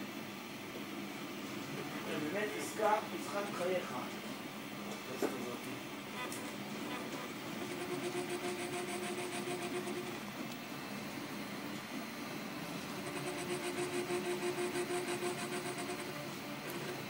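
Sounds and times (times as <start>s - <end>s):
stepper motors whining: 6.1s - 17.0s.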